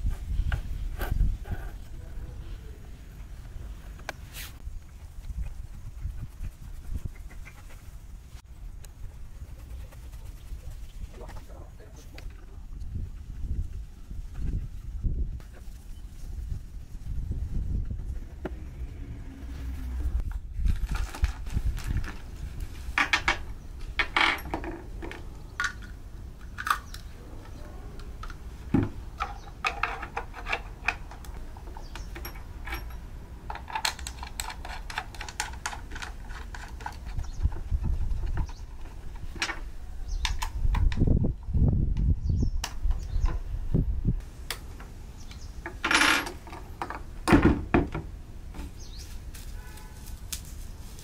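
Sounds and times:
plastic parts clicking: 29.1 - 37.2
screws clinking: 29.2 - 37.3.

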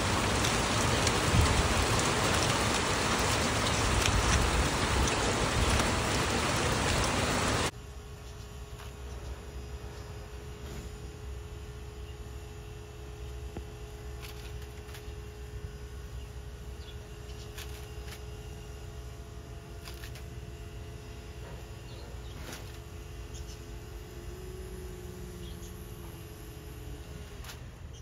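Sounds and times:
steady low hum: 0.0 - 28.0
lettuce snapping and crunching: 19.8 - 20.3.

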